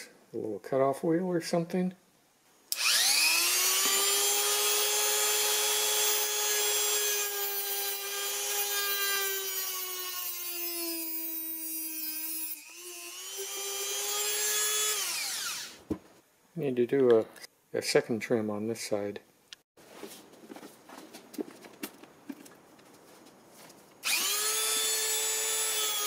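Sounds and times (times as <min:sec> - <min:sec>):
rotary tool grinding metal: 0:24.0 - 0:26.0.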